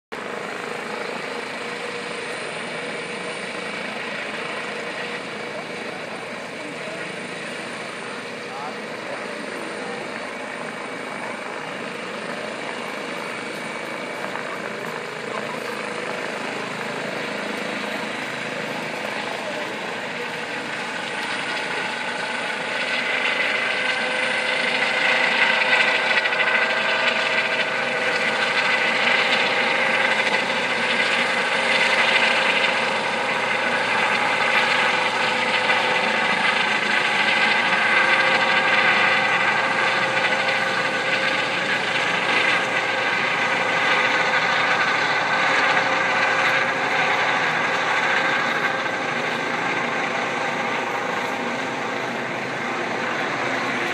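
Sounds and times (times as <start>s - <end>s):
helicopter turbine whine and rotor: 0.1s - 53.9s.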